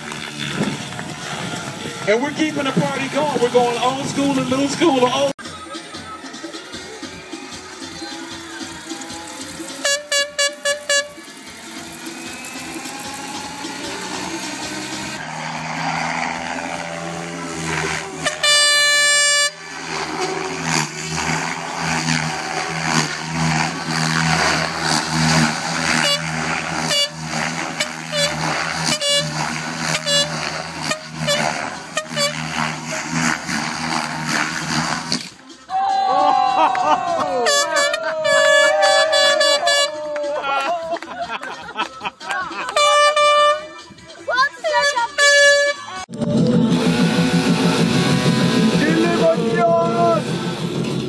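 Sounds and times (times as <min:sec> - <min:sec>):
party music over loudspeakers: 0:01.5 - 0:12.0, 0:35.5 - 0:40.4, 0:41.5 - 0:46.1
air horn blasts: 0:09.6 - 0:15.4, 0:16.0 - 0:35.2, 0:37.3 - 0:40.1, 0:42.7 - 0:44.0, 0:44.6 - 0:50.0.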